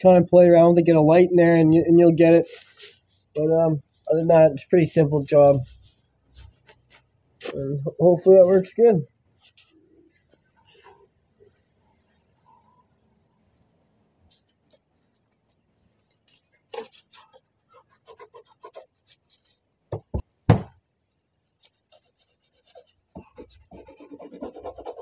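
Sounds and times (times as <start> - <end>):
pencil scratching on paper: 16.3 - 19.6, 21.6 - 25.0
loud knocks: 19.9 - 20.8.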